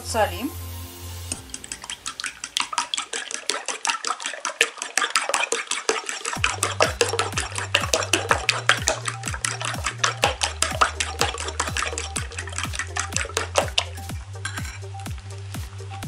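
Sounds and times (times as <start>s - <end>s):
fork beating eggs in a bowl: 1.3s - 16.0s.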